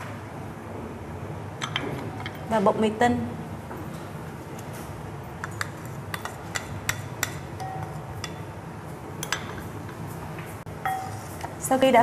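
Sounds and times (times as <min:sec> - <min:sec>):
spoon and bowl clinking on glass pot: 0:05.4 - 0:08.5, 0:10.8 - 0:11.4.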